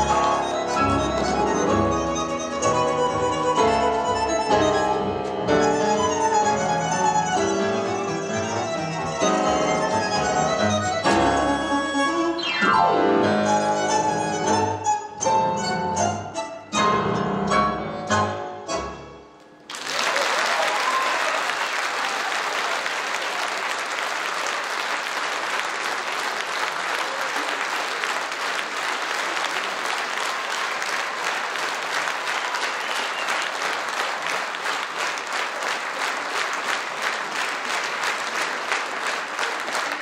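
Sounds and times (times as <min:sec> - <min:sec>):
audience applauding: 0:19.6 - 0:40.0.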